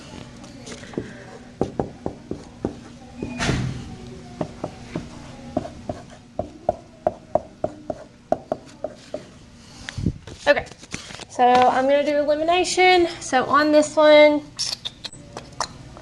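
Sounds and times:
marker tapping on whiteboard: 0:01.0 - 0:02.8, 0:05.6 - 0:09.3
marker rasping on whiteboard: 0:07.4 - 0:09.3
marker tip squeaking: 0:14.6 - 0:15.2.

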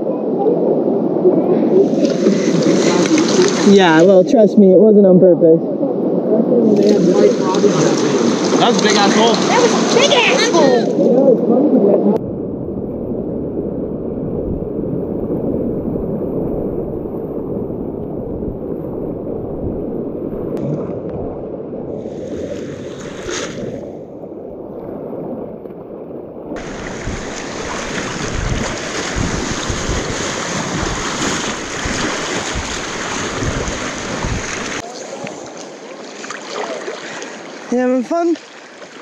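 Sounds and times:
river whitewater rushing: 0:07.0 - 0:10.8, 0:26.6 - 0:39.0
wind buffeting microphone: 0:12.2 - 0:34.8.

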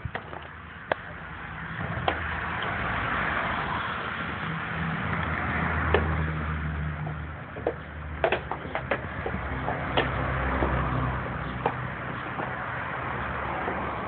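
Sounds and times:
low engine hum: 0:00.0 - 0:14.0
vehicle rushing past: 0:01.5 - 0:07.4, 0:09.0 - 0:14.0.

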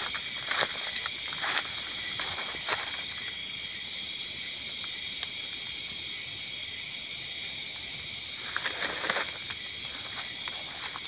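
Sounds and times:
footsteps rustling through leaves: 0:00.0 - 0:03.3
night insects chorus: 0:00.0 - 0:11.0.

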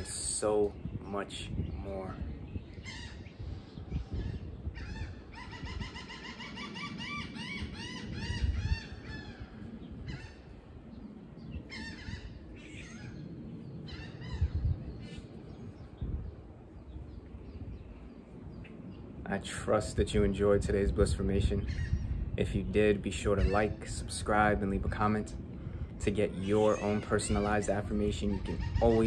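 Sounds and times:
birds honking calls: 0:01.9 - 0:16.0, 0:26.0 - 0:29.0.

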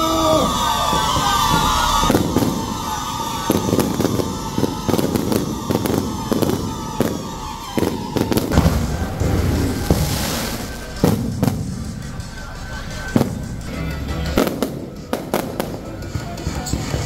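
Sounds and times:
fireworks bangs and pops: 0:00.0 - 0:17.0
steady rushing noise: 0:08.4 - 0:17.0.

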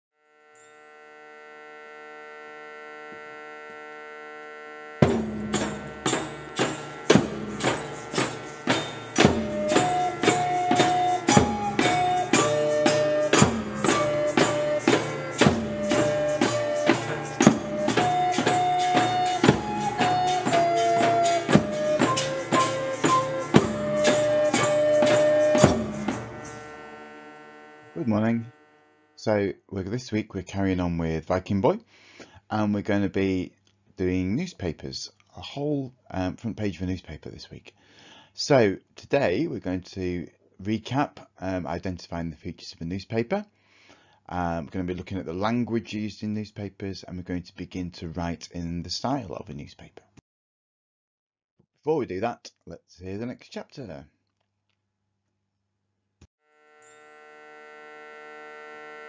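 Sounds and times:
held drone: 0:00.4 - 0:29.0, 0:56.7 - 0:59.0
percussion beat with melody: 0:05.0 - 0:27.3.

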